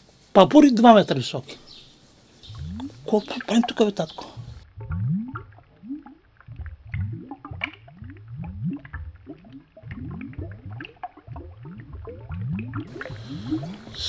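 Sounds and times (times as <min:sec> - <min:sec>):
underwater animal calls rising in pitch: 0:02.5 - 0:06.7, 0:12.9 - 0:14.0.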